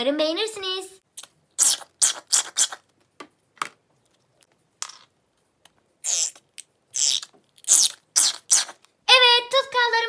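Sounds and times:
glue spurting from squeezed bottle: 1.2s - 2.9s, 6.0s - 8.8s.

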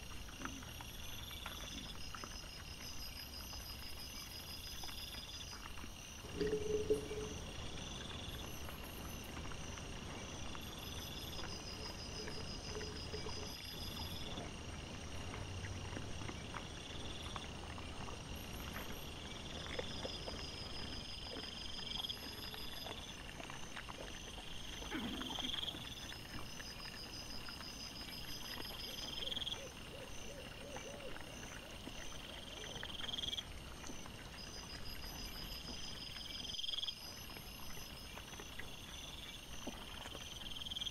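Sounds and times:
insects chirping and trilling: 0.0s - 40.9s
low animal call: 6.2s - 9.5s.

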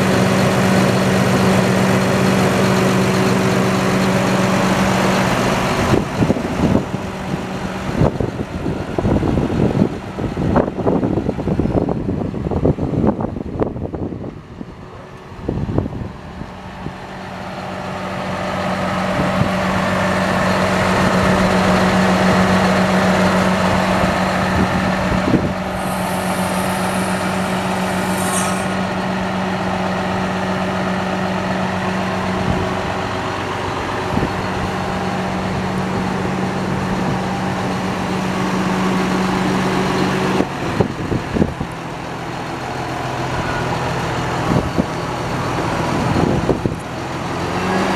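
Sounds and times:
tractor diesel engine running: 0.0s - 47.9s
brief high hiss: 25.7s - 29.1s.

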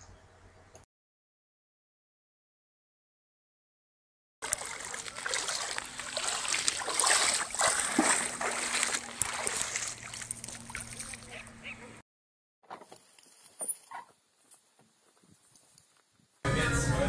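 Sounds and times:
shallow water splashing: 4.4s - 11.6s.

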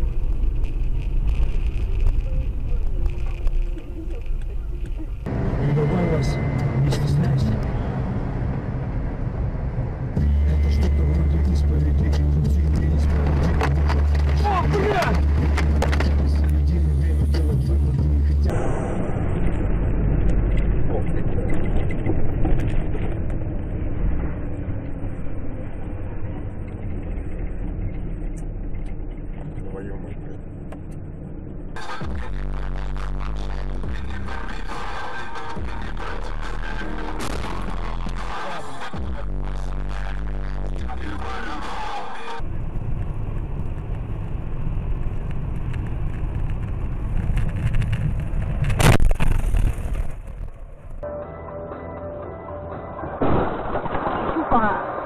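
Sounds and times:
moving vehicle rumble: 0.0s - 55.0s
loud crash impact: 53.0s - 55.0s.

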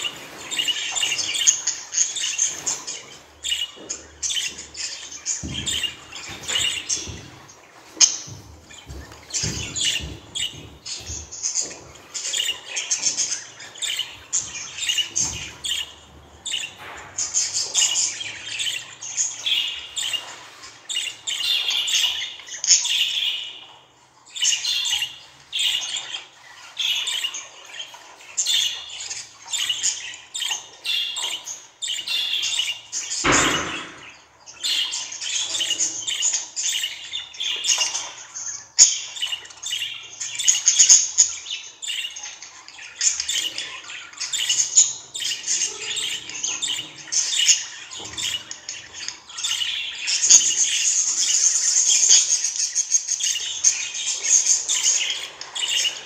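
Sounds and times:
budgerigar chirping: 8.0s - 16.8s.

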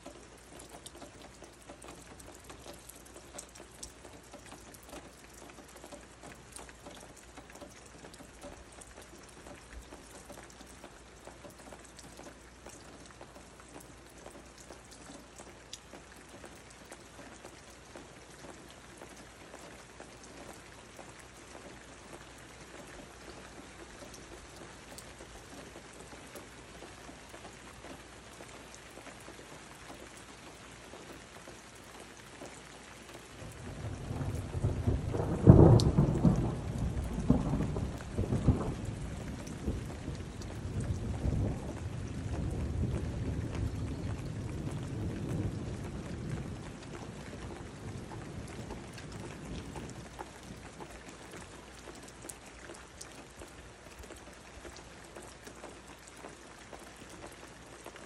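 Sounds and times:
raindrop ticks: 0.0s - 58.0s
steady rain falling: 0.0s - 58.0s
low rumble of thunder: 33.4s - 52.0s.

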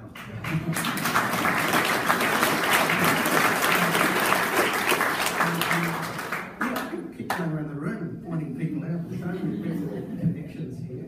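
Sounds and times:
audience applause: 0.0s - 7.0s.

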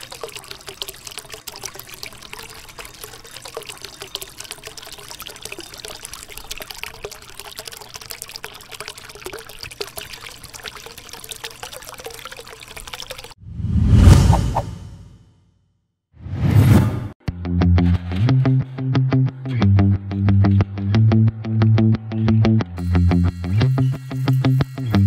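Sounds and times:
fountain water trickling and splashing: 0.0s - 13.4s, 22.8s - 25.0s.

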